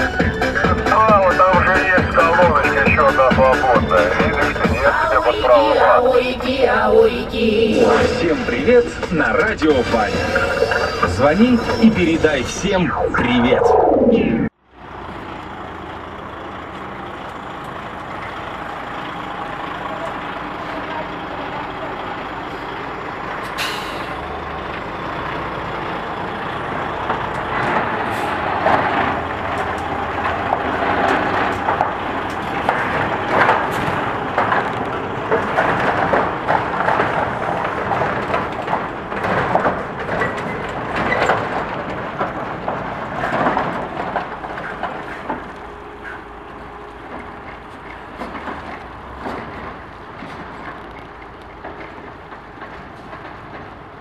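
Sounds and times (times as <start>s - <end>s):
diesel truck engine pulling away: 0.0s - 54.0s
truck rumbling and clattering: 0.0s - 54.0s
air brake hiss: 23.5s - 24.2s.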